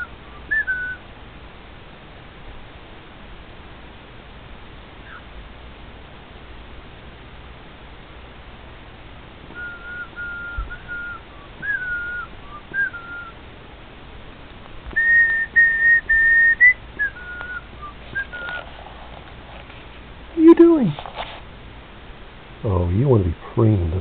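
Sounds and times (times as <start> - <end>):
whistled tune: 0.0 - 1.0, 9.5 - 13.4, 15.0 - 18.6.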